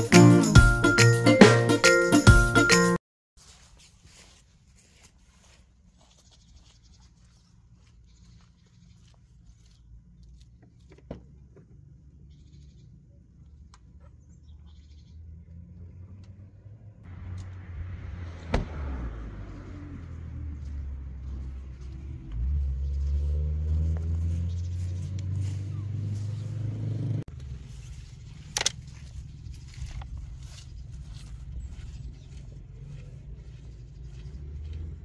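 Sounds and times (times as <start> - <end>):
vehicle engine running: 7.2 - 35.0.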